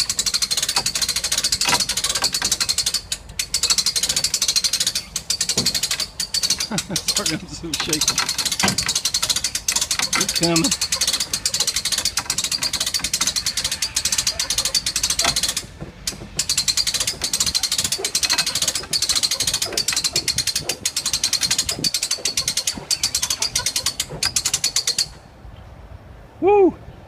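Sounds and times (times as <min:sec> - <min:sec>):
winch ratcheting clicks: 0:00.0 - 0:25.2.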